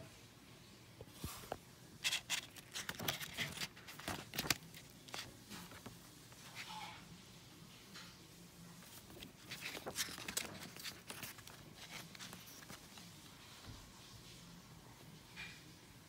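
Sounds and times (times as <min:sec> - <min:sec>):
paper pages rustling: 0:01.2 - 0:06.8, 0:08.8 - 0:13.8.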